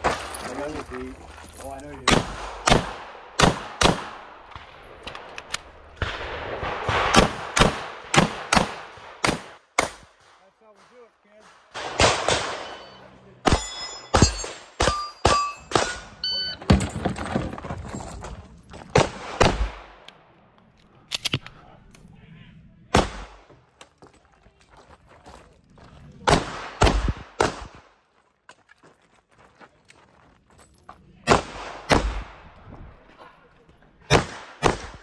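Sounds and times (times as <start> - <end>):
steel plate ringing: 12.6 - 16.5.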